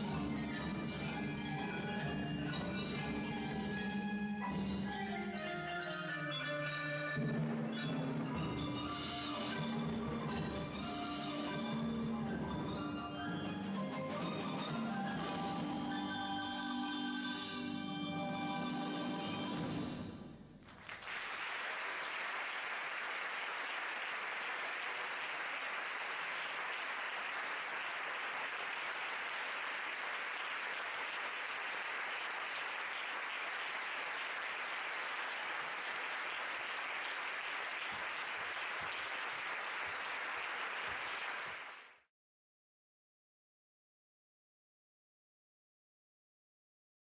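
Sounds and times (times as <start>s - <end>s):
audience applauding: 20.6s - 42.1s.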